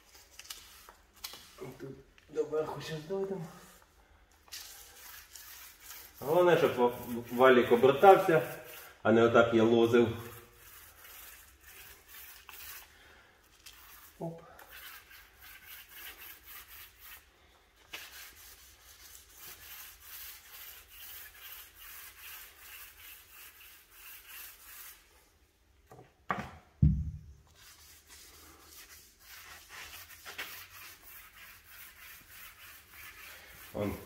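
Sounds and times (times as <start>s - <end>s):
paint roller swishing on wall: 0.0s - 25.4s, 27.4s - 34.0s
thump: 26.3s - 27.3s.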